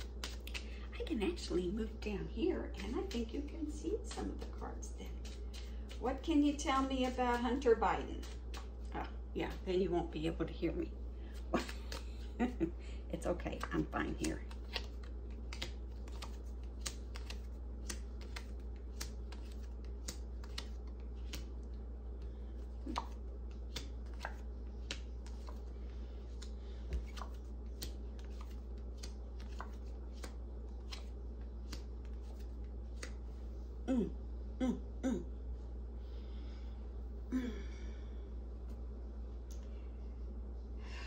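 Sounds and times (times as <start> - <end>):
cards being shuffled: 0.0 - 0.8, 2.7 - 9.6, 11.3 - 12.5, 13.6 - 33.5
steady low hum: 0.0 - 41.0.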